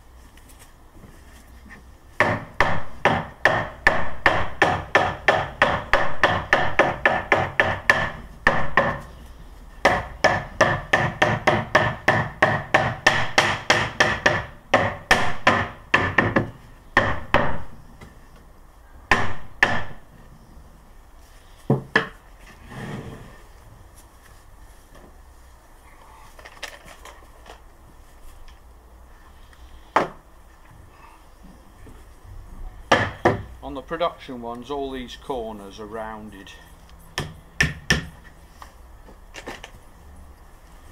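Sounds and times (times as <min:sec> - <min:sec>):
rubber mallet knocking wood: 0:02.2 - 0:09.0, 0:09.8 - 0:17.7, 0:19.1 - 0:20.0.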